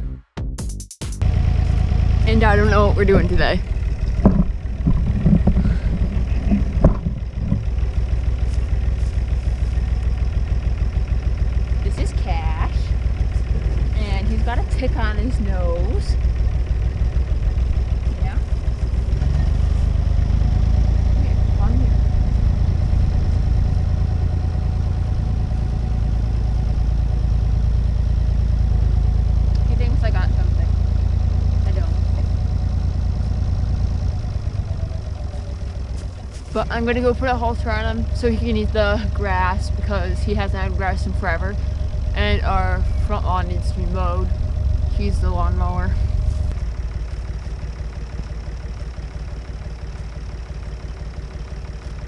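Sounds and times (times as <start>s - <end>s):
wind buffeting microphone: 2.3s - 9.6s.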